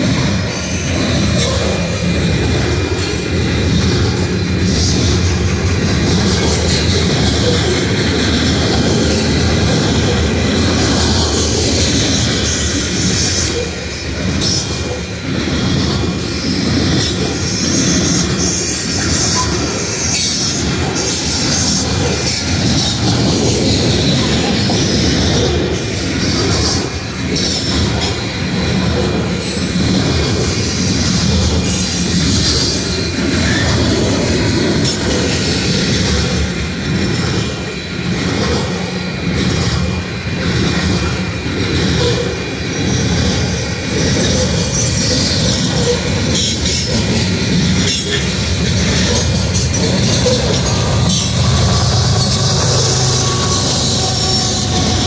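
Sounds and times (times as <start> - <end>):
steel wheels rumbling on rail: 0.0 - 55.0.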